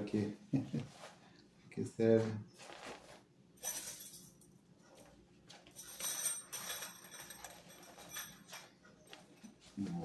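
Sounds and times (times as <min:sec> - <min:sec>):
fabric rustling: 0:02.2 - 0:03.3
light jingle: 0:05.7 - 0:08.8.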